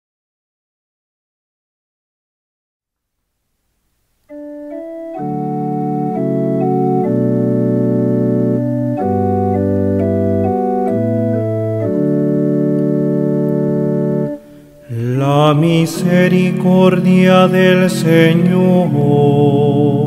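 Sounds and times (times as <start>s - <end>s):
organ playing slow chords: 4.2s - 20.0s.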